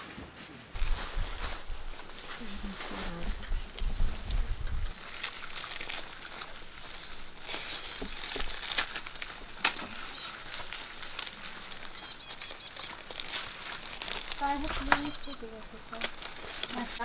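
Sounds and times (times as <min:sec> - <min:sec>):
flower stems rustling: 0:00.0 - 0:17.0
plastic sleeves crinkling: 0:00.7 - 0:17.0
faint high chirps: 0:07.0 - 0:09.0, 0:09.8 - 0:13.4, 0:14.3 - 0:15.7.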